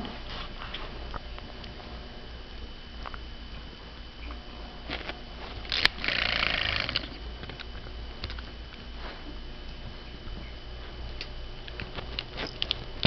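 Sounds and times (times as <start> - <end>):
toy buzzing: 5.6 - 7.2.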